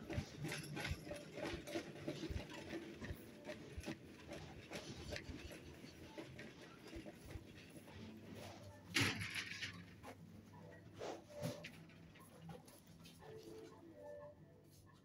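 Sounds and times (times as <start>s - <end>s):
faint shop background: 0.0s - 15.0s.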